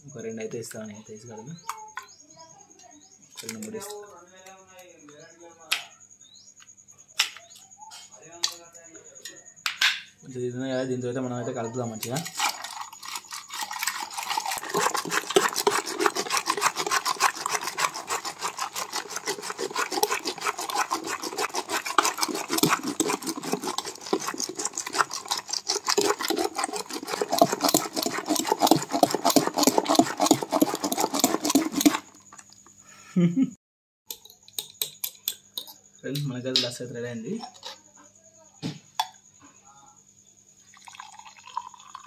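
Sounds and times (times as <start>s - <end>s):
whisk scraping a metal pot: 12.0s - 32.4s
liquid sloshing: 12.0s - 32.6s, 40.7s - 42.0s.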